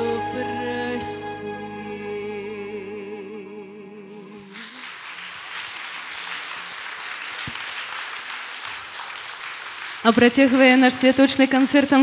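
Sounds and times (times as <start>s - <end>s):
musical accompaniment: 0.0s - 3.4s
person singing with vibrato: 0.0s - 4.8s
audience applauding: 4.4s - 12.0s.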